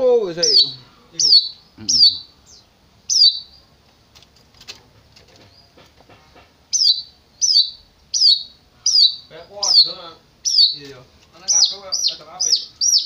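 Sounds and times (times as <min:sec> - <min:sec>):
bird meow-like call: 0:00.4 - 0:03.5, 0:06.8 - 0:10.8.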